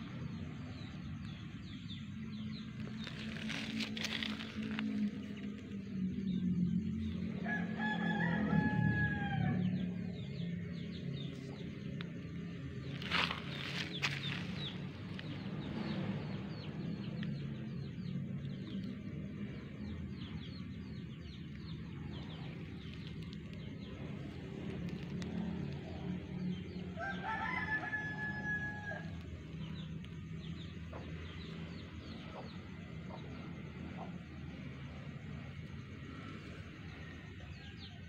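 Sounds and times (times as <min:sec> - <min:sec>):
steady low hum: 0:00.0 - 0:38.0
rooster crowing: 0:07.4 - 0:10.0, 0:27.0 - 0:29.2.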